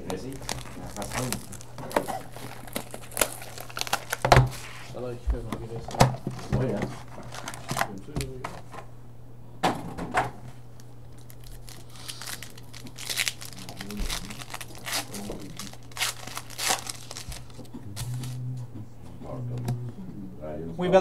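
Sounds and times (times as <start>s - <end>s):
wrapper tearing and crinkling: 0.1s - 4.7s, 7.1s - 7.9s, 11.1s - 18.4s.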